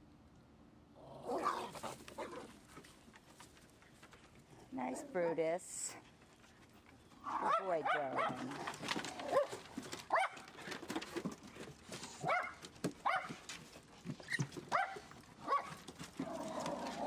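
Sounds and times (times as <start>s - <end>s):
dog yelping: 1.3s - 2.4s, 7.2s - 8.5s, 9.2s - 10.5s, 12.2s - 13.4s, 14.3s - 15.8s
claws clicking on wooden deck: 6.1s - 17.0s.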